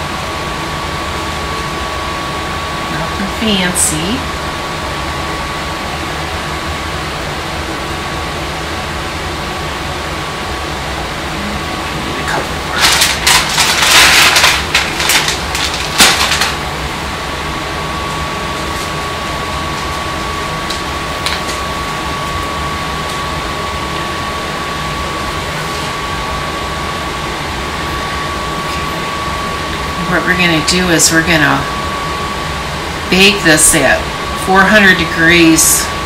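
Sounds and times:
steady background hum: 0:00.0 - 0:36.0
plastic bag rustling: 0:12.6 - 0:16.7.

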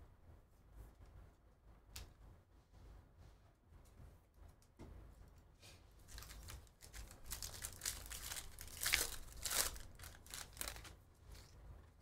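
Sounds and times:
wrapper tearing and crinkling: 0:06.1 - 0:11.5.

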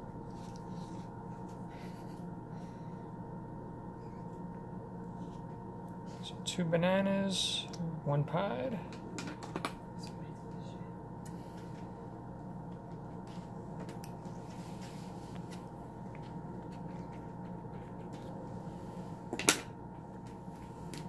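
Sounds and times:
steady background hum: 0:00.0 - 0:21.0
soft handling noises: 0:12.7 - 0:18.5.

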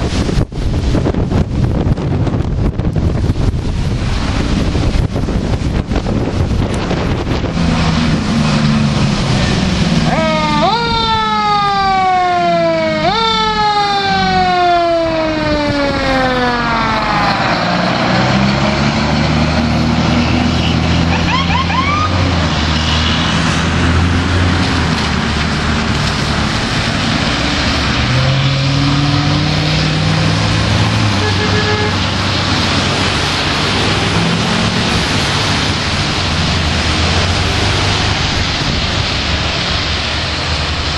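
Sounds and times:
tyres hissing on wet road: 0:00.0 - 0:11.8, 0:14.1 - 0:40.9
truck engine rumbling: 0:00.0 - 0:40.9
mechanical siren winding down: 0:10.0 - 0:18.7.

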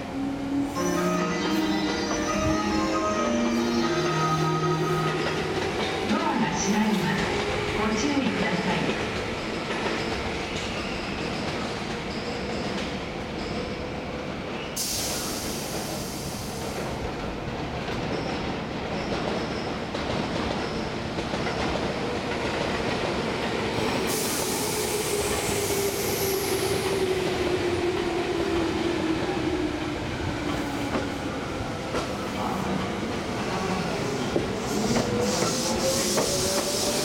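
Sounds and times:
train wheels rumbling: 0:01.2 - 0:37.0
burst of hiss: 0:14.8 - 0:16.8
electric train starting off: 0:14.8 - 0:17.1, 0:23.6 - 0:32.1, 0:32.7 - 0:37.0.

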